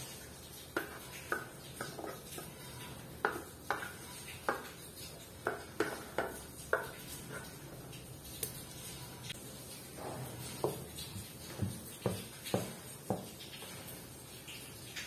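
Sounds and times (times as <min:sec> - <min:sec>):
wooden spoon scraping saucepan: 0:00.7 - 0:07.8
spoon knocking against pan: 0:00.8 - 0:04.8, 0:05.4 - 0:07.5.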